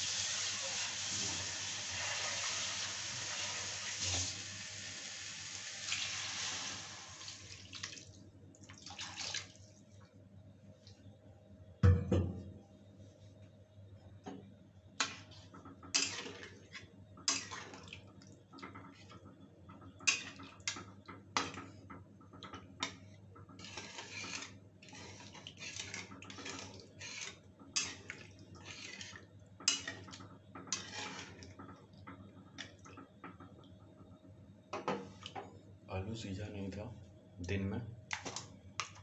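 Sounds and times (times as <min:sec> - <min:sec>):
liquid sloshing: 0:08.7 - 0:09.6
spatula scraping a pan: 0:15.9 - 0:17.8, 0:22.8 - 0:31.6.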